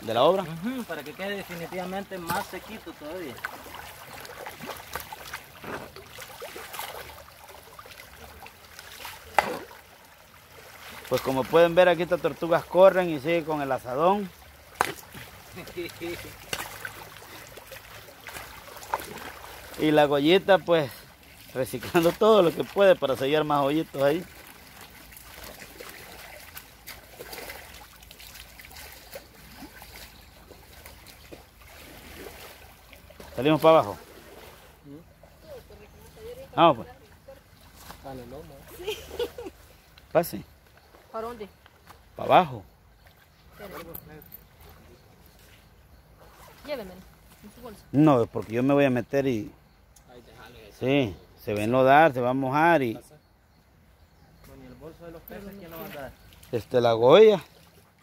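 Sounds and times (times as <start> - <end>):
hoe splashing in water and mud: 0.0 - 35.5, 55.6 - 58.0
stream trickling: 0.0 - 58.0.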